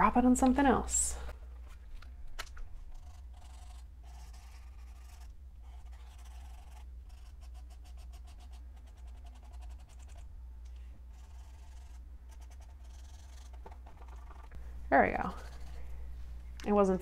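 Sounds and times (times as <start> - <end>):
marker tip scratching paper: 2.9 - 10.3, 11.1 - 14.5.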